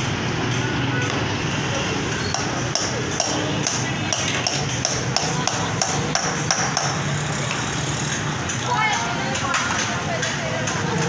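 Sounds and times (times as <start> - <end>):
motorcycle engines: 0.0 - 11.0
street noise: 0.0 - 11.0
sharp repeated knocking: 2.3 - 7.1.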